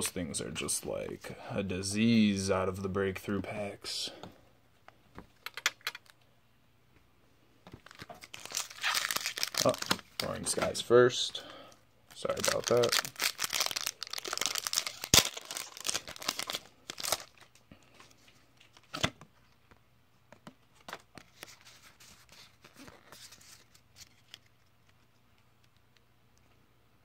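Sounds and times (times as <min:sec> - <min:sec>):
cards rustling and clicking: 0:07.7 - 0:10.8, 0:12.1 - 0:17.6
foil wrapper tearing and crinkling: 0:07.8 - 0:10.4, 0:12.2 - 0:17.6
sharp foil crack: 0:14.8 - 0:16.1.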